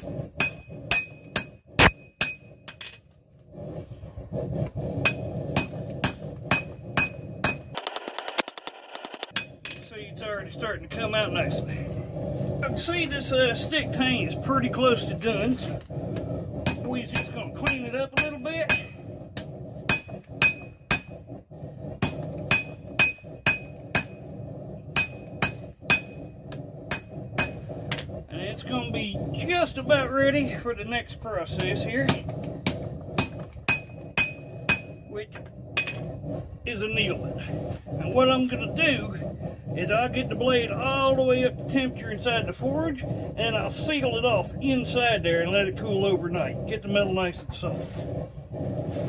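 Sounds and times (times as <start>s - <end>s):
low steady rushing noise: 0.0s - 49.0s
steady low hum: 0.0s - 49.0s
hammer striking steel on anvil: 0.4s - 3.0s, 5.0s - 7.8s, 9.3s - 9.9s, 16.6s - 21.1s, 22.0s - 24.2s, 25.0s - 26.2s, 26.9s - 28.1s, 32.1s - 36.1s.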